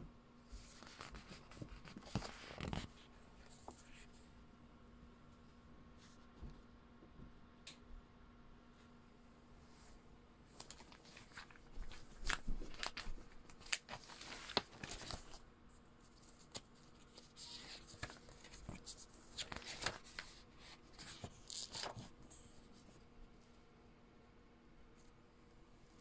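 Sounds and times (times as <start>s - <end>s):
magazine pages rustling: 0.6s - 4.0s, 10.5s - 15.4s, 16.1s - 22.5s.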